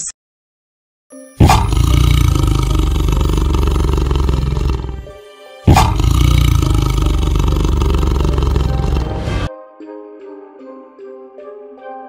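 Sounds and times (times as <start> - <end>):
tiger roaring: 1.4 - 5.1, 5.7 - 9.5.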